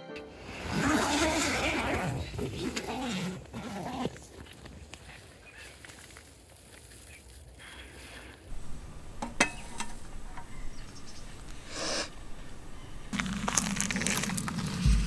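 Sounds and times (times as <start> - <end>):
camp cookware clinking: 8.5 - 11.5.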